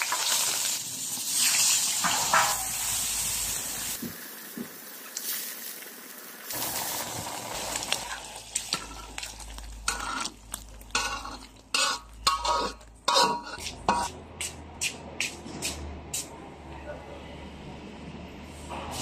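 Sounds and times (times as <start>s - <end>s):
boiling wok hissing: 0.0s - 16.3s
metal ladle clinking and scraping: 8.6s - 14.2s.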